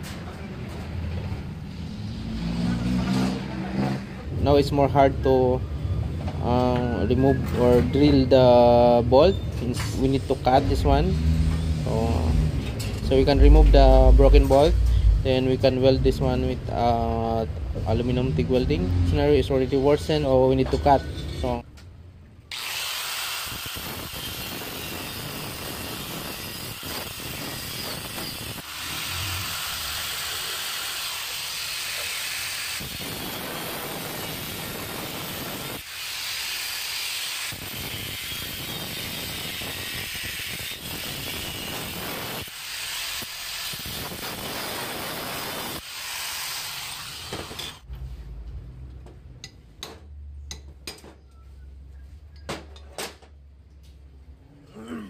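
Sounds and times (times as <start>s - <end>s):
angle grinder cutting metal: 22.5s - 47.9s.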